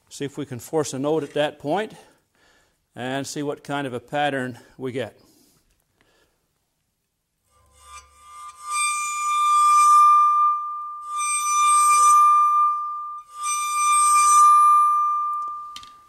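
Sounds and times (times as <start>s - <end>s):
bowed saw blade ringing tone: 7.5s - 16.0s
scratchy bow strokes: 7.5s - 16.0s.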